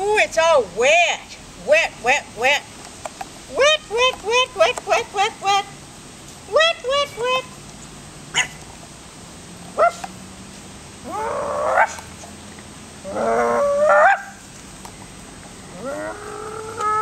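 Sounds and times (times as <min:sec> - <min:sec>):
puppy yelping and bark-howling: 0:09.8 - 0:10.0, 0:11.0 - 0:12.0, 0:13.1 - 0:14.4, 0:15.8 - 0:17.0.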